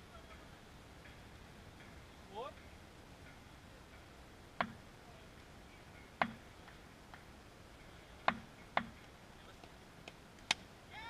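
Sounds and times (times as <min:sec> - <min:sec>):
cricket bat tapping hard ground: 0:06.2 - 0:07.2.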